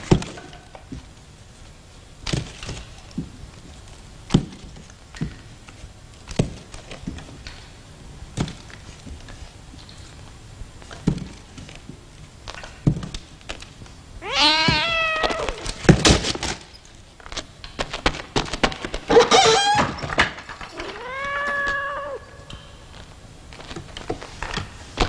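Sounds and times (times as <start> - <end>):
cat meowing: 14.2 - 15.8, 20.7 - 22.5.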